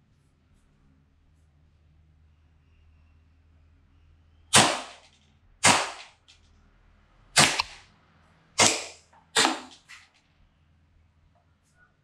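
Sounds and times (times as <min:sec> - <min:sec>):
airsoft pistol shots: 0:04.5 - 0:06.2, 0:07.4 - 0:07.8, 0:08.6 - 0:10.0.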